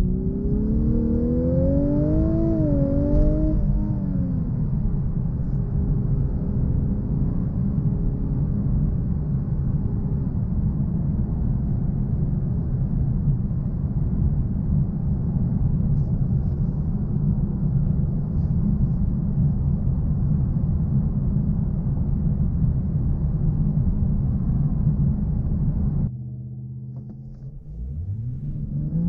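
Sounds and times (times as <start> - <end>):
road and tyre rumble: 0.0 - 29.0.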